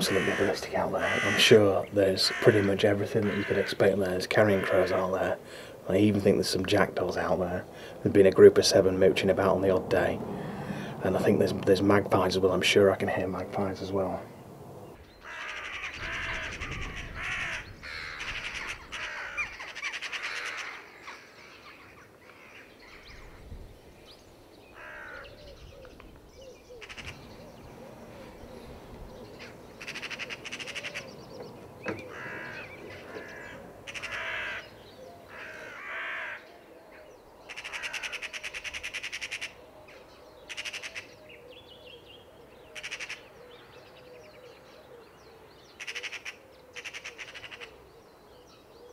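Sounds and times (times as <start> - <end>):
crows cawing: 0.0 - 5.8, 15.1 - 23.2, 24.7 - 25.5, 26.7 - 27.2, 29.4 - 31.2, 31.8 - 39.6, 40.5 - 41.2, 42.6 - 43.4, 45.8 - 47.8
magpies chattering: 0.0 - 7.6, 15.0 - 23.4, 24.7 - 44.3, 45.7 - 47.8.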